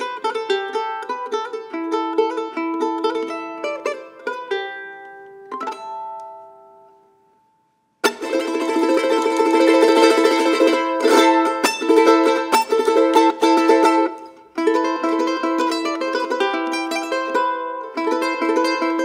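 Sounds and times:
charango plucked notes: 0:00.0 - 0:07.0, 0:08.0 - 0:19.0
fast loud chord strumming: 0:08.0 - 0:16.4.

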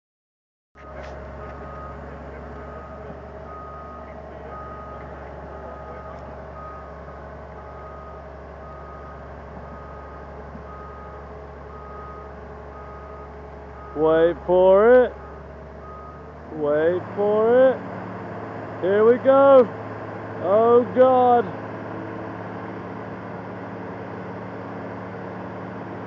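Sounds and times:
backup alarm beeping: 0:00.8 - 0:07.0, 0:07.6 - 0:14.5, 0:15.1 - 0:16.3
excavator diesel engine running: 0:00.8 - 0:26.0.

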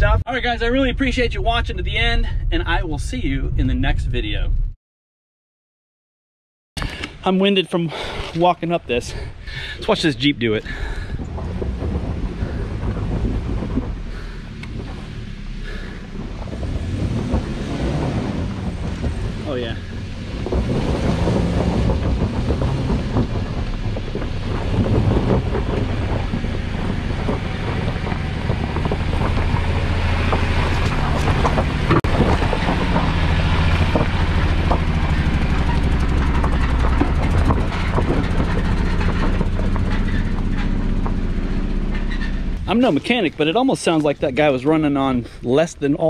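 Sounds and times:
rough engine labouring: 0:07.9 - 0:46.0
tyres knocking and crunching on rocks: 0:10.7 - 0:43.2.

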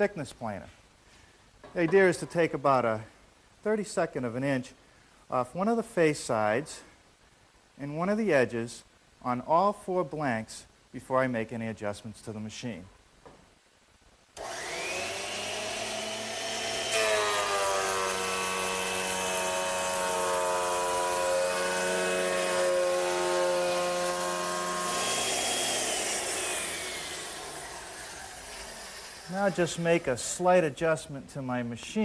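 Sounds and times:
planer motor whining: 0:14.4 - 0:29.3
wood planing cut: 0:14.4 - 0:30.5.

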